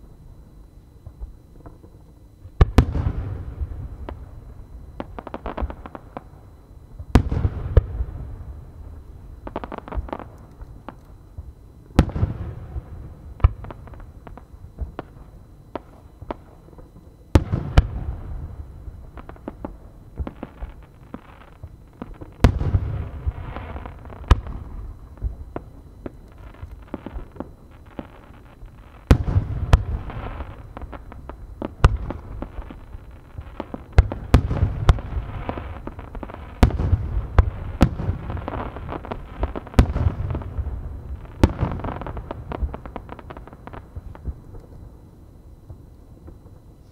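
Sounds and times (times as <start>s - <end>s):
firework bangs and booms: 2.6s - 4.4s, 7.0s - 8.8s, 9.4s - 44.7s
firework crackling: 17.3s - 44.8s.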